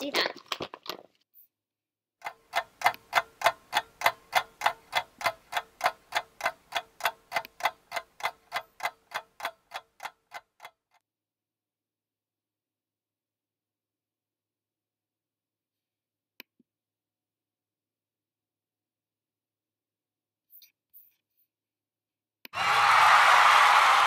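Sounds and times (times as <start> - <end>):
clock ticking: 2.2 - 11.0.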